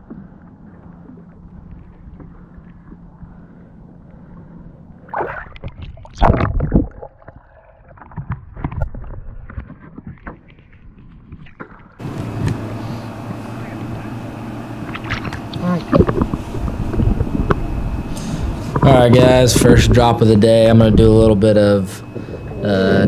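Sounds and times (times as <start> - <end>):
faint low hum: 0.0 - 7.0, 12.0 - 23.0
muffled water sloshing: 0.0 - 23.0
water splashes: 5.0 - 12.0, 14.8 - 17.6.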